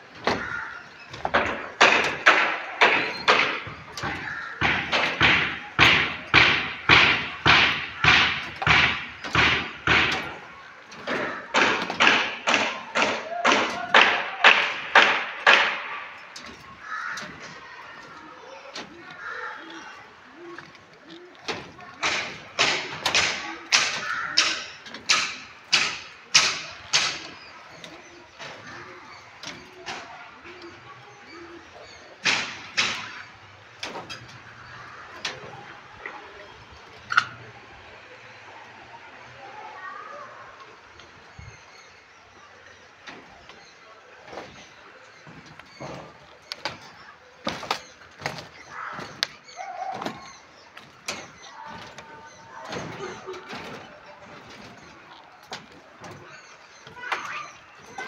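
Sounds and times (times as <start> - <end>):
sharp ringing knocks: 0.1 - 35.8.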